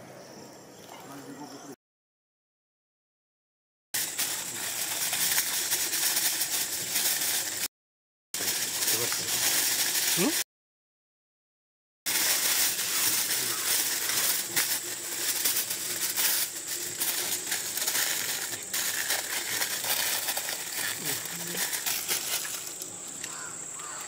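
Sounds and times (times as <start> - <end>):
aluminium foil crinkling: 4.0 - 7.7, 8.4 - 10.4, 12.1 - 24.0.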